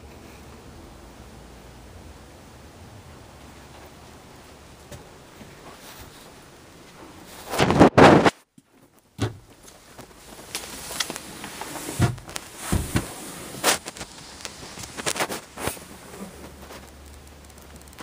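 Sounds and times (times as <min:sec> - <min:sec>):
footsteps on trailer floor: 0:04.8 - 0:07.6, 0:08.6 - 0:16.9.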